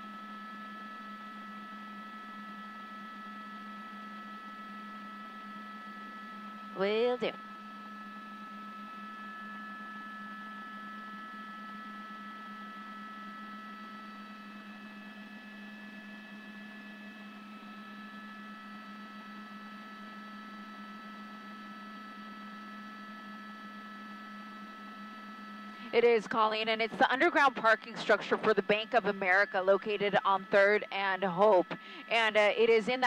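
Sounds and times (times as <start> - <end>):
helicopter cabin drone: 0.0 - 33.0.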